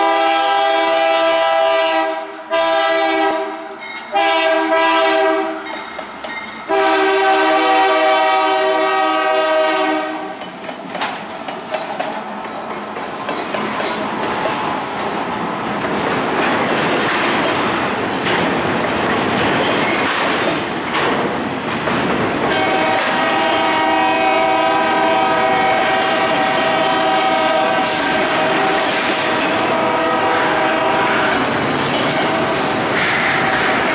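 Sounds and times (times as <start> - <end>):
locomotive air horn chord: 0.0 - 5.7, 6.7 - 10.3, 22.5 - 31.5
train wheels clattering on rails: 1.9 - 33.9.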